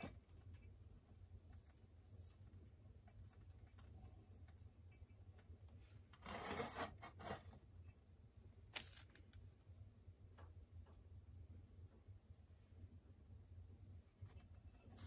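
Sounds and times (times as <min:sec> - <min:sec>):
soft rustle of handling: 0:00.0 - 0:08.0, 0:13.7 - 0:15.0.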